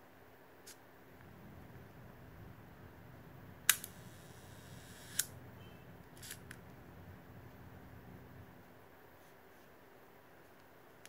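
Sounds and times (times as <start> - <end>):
camera shutter clicks: 3.7 - 4.2, 4.8 - 5.3.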